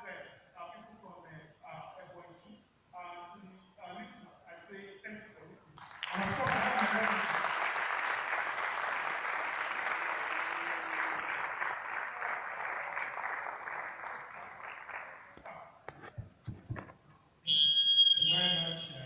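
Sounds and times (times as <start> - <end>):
audience applauding: 5.8 - 15.4.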